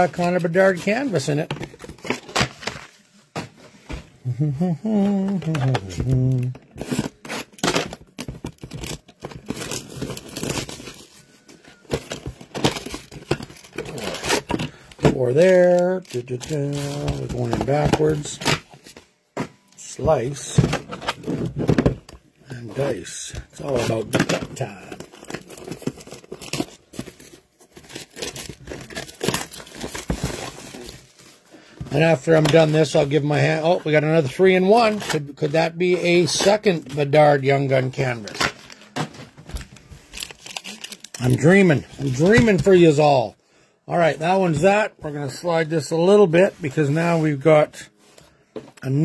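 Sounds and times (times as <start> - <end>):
cardboard tearing: 23.6 - 31.2, 40.2 - 41.5
plastic wrap crinkling: 33.8 - 43.0.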